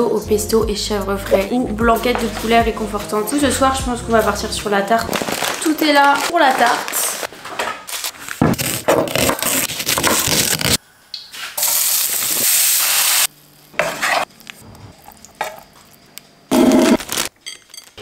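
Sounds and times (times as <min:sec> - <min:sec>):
baking paper rustling and crinkling: 0:04.8 - 0:10.8
food sizzling in a frying pan: 0:11.6 - 0:14.3.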